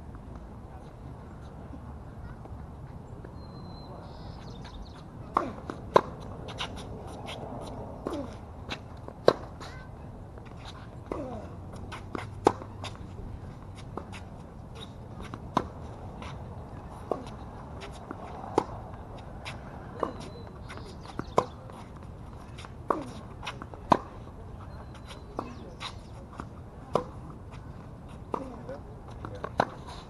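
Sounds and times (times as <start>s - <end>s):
racket hitting tennis ball: 5.3s - 9.7s, 10.6s - 13.0s, 13.8s - 24.2s, 25.4s - 27.3s, 28.3s - 30.0s.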